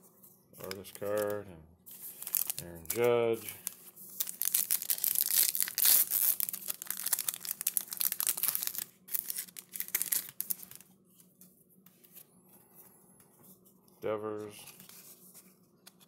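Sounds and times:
plastic wrapper crinkling and tearing: 0:00.6 - 0:10.9.

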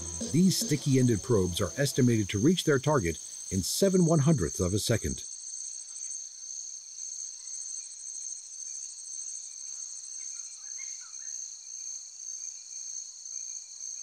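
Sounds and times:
faint chirps: 0:00.0 - 0:04.5
insects trilling: 0:00.0 - 0:13.6.

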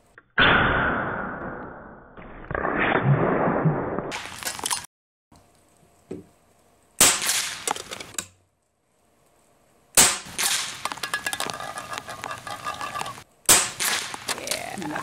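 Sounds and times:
air rifle shots: 0:07.0 - 0:07.8, 0:10.0 - 0:11.0, 0:13.5 - 0:14.4.

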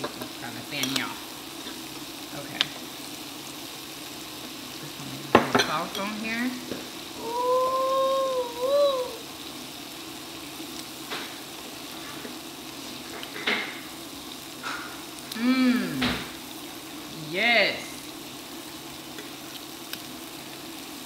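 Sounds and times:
food sizzling on grill plate: 0:00.0 - 0:21.0.

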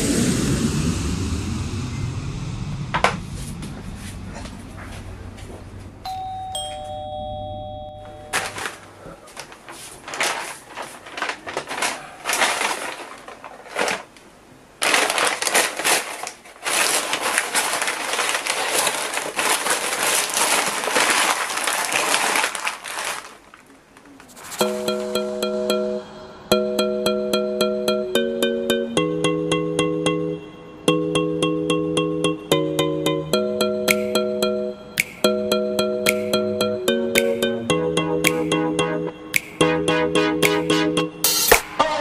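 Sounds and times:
two-note doorbell chime: 0:06.0 - 0:08.8, 0:24.6 - 0:41.5
paper wrapping crinkling: 0:08.3 - 0:24.9.

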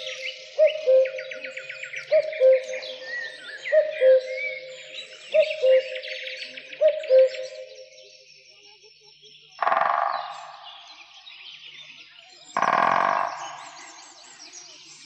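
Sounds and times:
woodpecker drumming: 0:00.0 - 0:07.7, 0:09.6 - 0:11.3, 0:12.5 - 0:14.5
birds chirping and trilling: 0:00.0 - 0:15.0.

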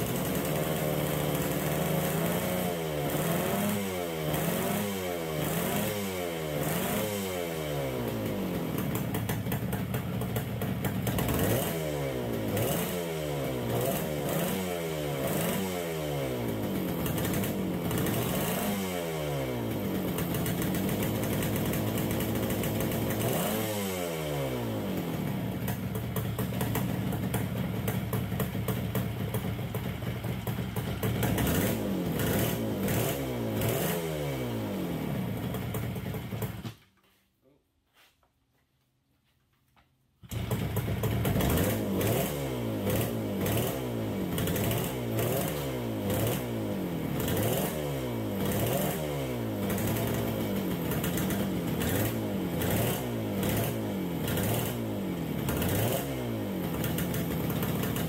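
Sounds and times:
two-stroke motorcycle engine revving: 0:00.0 - 0:36.7, 0:40.3 - 0:58.0.

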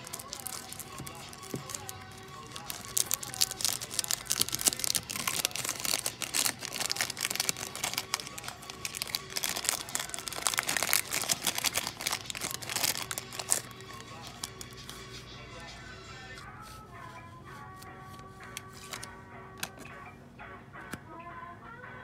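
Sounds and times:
plastic shrink-wrap crinkling: 0:00.0 - 0:15.0.

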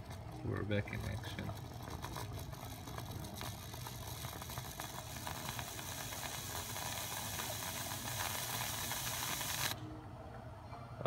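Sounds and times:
espresso machine low hum: 0:00.0 - 0:10.5
hiss of water and air: 0:03.0 - 0:09.8.

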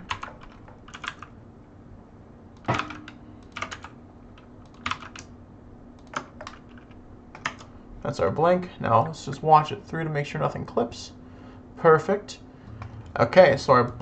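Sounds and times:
keyboard keystrokes: 0:00.0 - 0:01.3, 0:02.6 - 0:05.3, 0:06.0 - 0:07.7
faint steady hum: 0:00.0 - 0:14.0.

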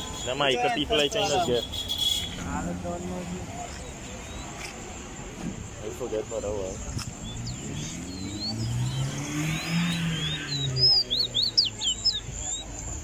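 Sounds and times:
songbird chirping: 0:00.0 - 0:13.0
vehicle engine passing: 0:06.6 - 0:12.6.

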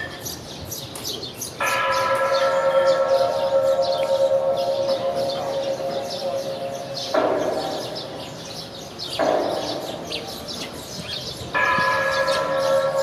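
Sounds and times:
large gong ringing: 0:02.0 - 0:08.4.

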